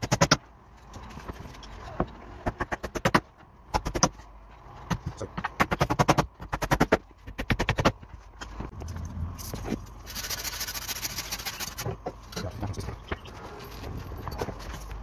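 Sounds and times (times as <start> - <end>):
hammer nailing wooden boards: 4.9 - 8.0.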